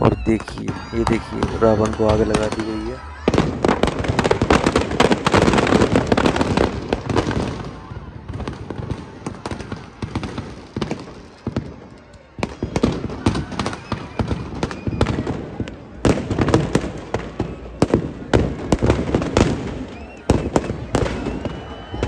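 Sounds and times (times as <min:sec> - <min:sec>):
firecrackers banging: 0:00.0 - 0:22.0.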